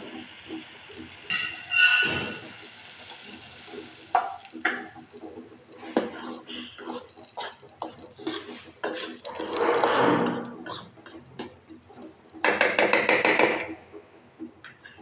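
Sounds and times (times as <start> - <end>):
metal spoon scraping pan: 1.3 - 2.6, 5.8 - 11.5.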